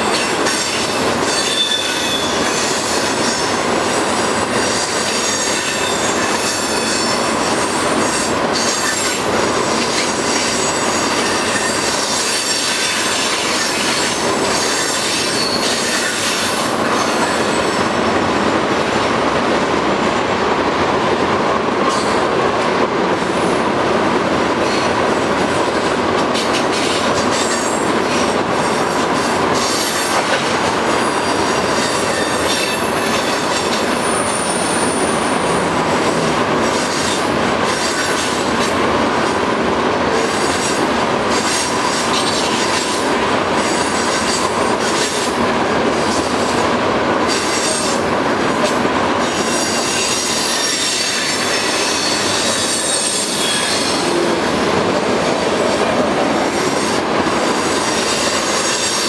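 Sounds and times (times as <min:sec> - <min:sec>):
train wheels rolling on rail: 0:00.0 - 0:59.0
wheel squeal whine: 0:01.3 - 0:02.9, 0:14.5 - 0:17.8.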